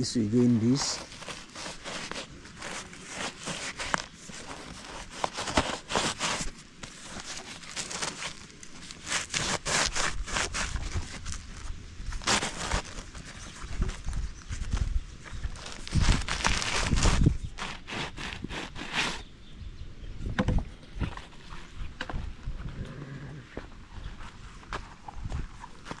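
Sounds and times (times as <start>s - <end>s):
hose rustling and scraping: 0.0s - 19.3s.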